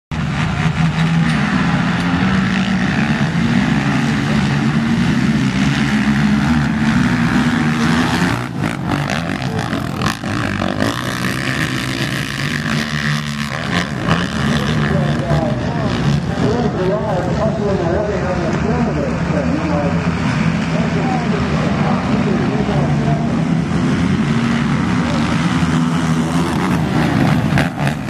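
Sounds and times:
quad engines revving: 0.1 - 28.0.

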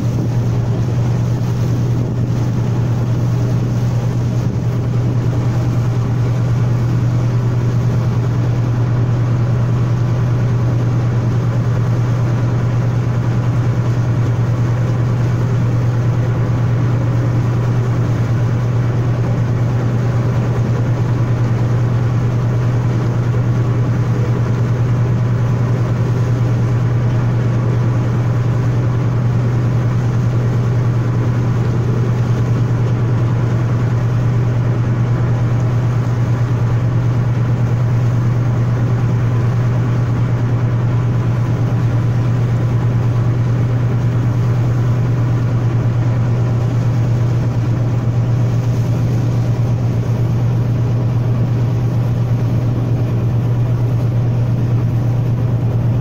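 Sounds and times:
ship engine humming: 0.0 - 56.0.

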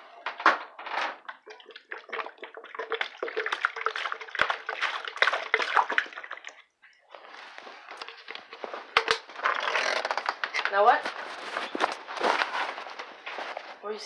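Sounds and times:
water pouring into bowl: 1.3 - 6.7.

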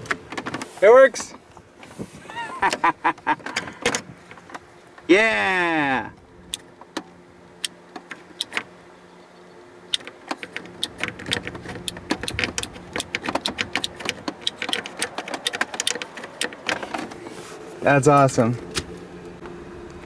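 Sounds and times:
rocker switches clicking: 6.5 - 8.7, 9.9 - 17.0.

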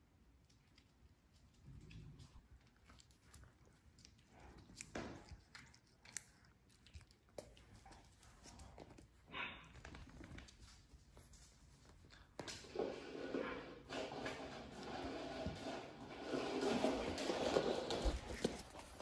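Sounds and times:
paws padding on hardwood floor: 7.3 - 19.0.

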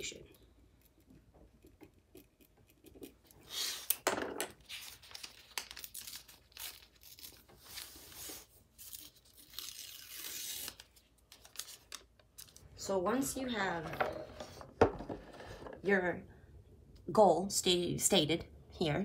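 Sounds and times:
paper tearing and crinkling: 4.6 - 12.6.

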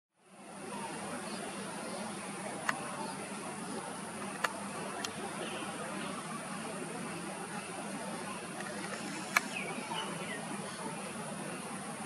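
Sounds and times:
low steady hum: 0.2 - 12.0
short sharp clicks: 8.6 - 9.6.

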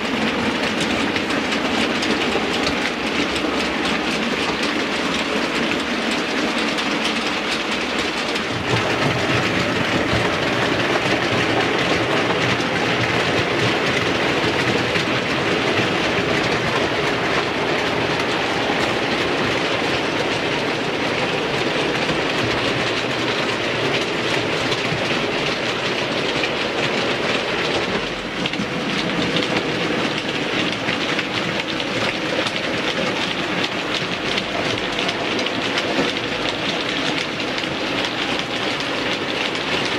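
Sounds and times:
model train wheels clattering on rails: 0.0 - 39.9.

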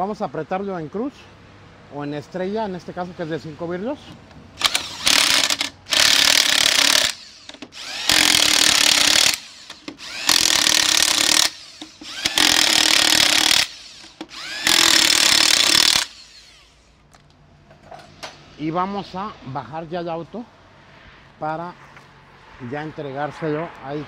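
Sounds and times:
impact wrench hammering: 4.6 - 16.2.

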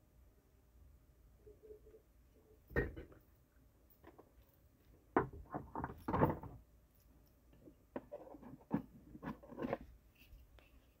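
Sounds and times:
objects knocking and rustling: 2.7 - 3.3, 3.9 - 6.7, 7.5 - 10.3.

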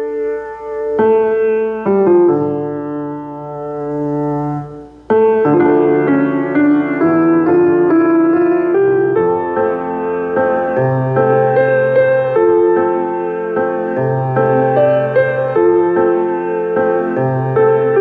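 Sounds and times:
slow piano chords: 0.0 - 18.0.

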